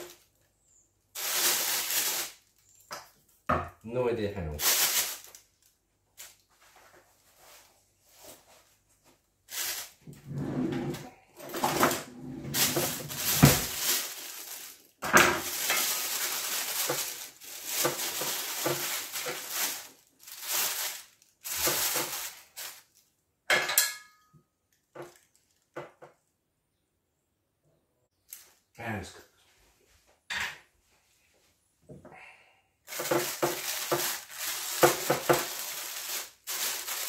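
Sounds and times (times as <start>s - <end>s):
plastic bag crinkling and tearing: 0.0s - 0.4s, 1.1s - 3.4s, 4.6s - 6.5s, 9.5s - 10.2s, 11.6s - 23.1s, 32.9s - 37.0s.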